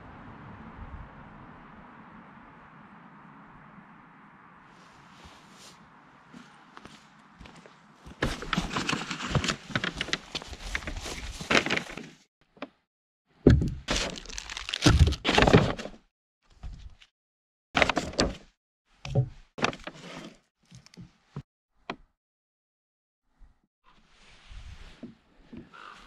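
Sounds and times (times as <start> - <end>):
paper bag rustling: 8.2 - 12.2, 13.9 - 15.8
plastic packaging crinkling: 13.9 - 15.2.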